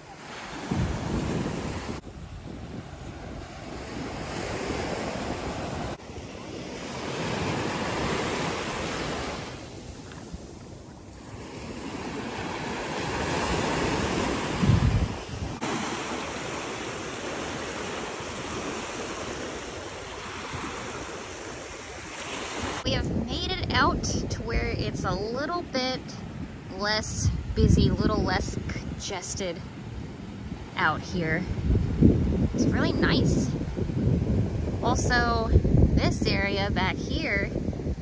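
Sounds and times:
small waves breaking on sand: 0.0 - 24.0
wind rumbling on microphone: 0.0 - 38.0.

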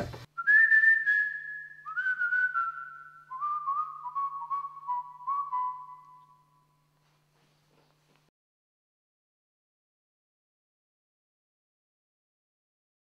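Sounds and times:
person whistling: 0.4 - 6.7.

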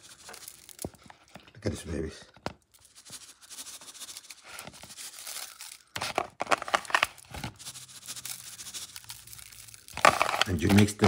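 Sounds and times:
hands tossing wet fish in plastic bowl: 9.2 - 11.0.

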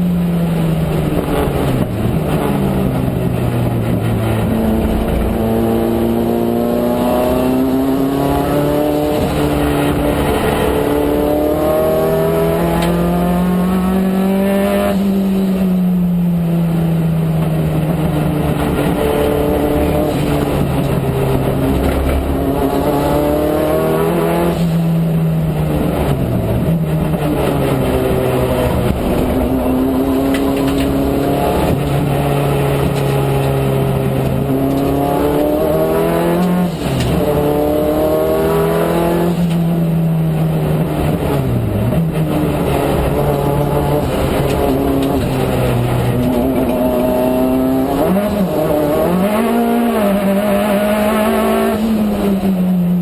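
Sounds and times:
race car engine revving: 0.3 - 53.0.

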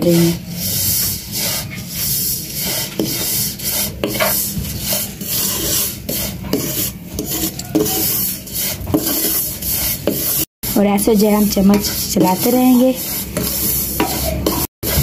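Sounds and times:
wooden spatula scraping in a pan: 0.0 - 15.0.

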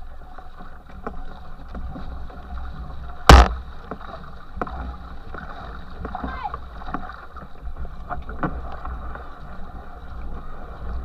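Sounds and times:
paddle strokes: 0.0 - 11.0
loud sharp hit: 3.3 - 3.5.

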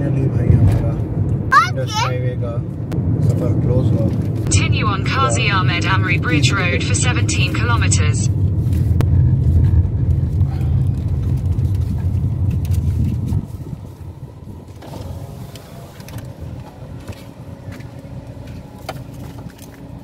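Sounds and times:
car road and engine rumble: 0.0 - 20.0
car engine idling: 13.9 - 20.0.

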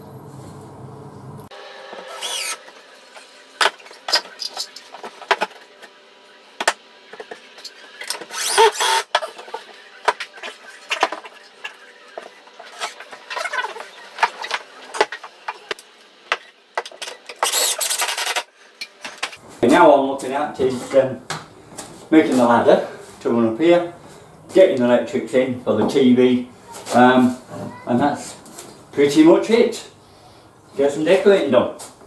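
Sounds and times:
cordless drill driving screws: 2.1 - 2.6, 8.1 - 9.1.

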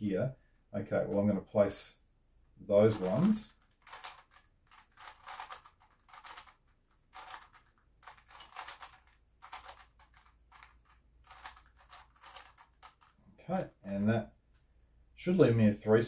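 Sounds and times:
puzzle cube clicking: 2.9 - 14.7.

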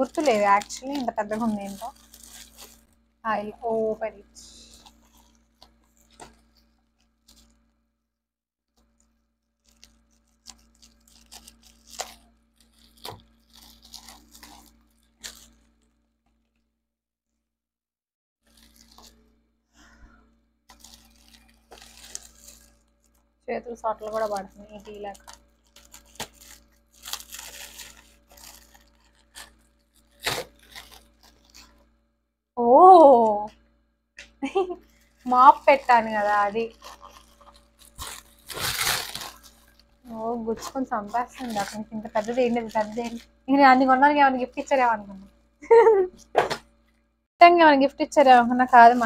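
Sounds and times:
plastic packaging crinkling and ripping: 0.0 - 3.0, 4.5 - 7.7, 8.8 - 16.6, 18.4 - 19.2, 20.7 - 31.9, 34.4 - 43.5, 48.2 - 49.0.

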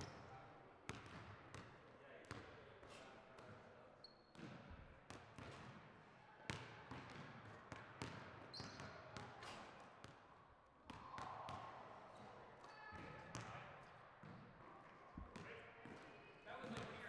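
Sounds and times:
basketballs bouncing on wood floor: 0.9 - 1.6.

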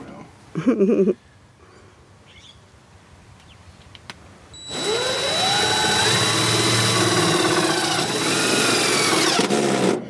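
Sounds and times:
cordless drill motor whine: 4.6 - 10.0.

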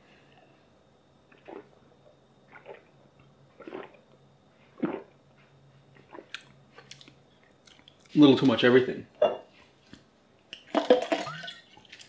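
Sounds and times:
person gulping a drink: 1.3 - 1.8, 2.5 - 4.1, 4.7 - 5.2, 6.0 - 8.0, 10.6 - 12.0.

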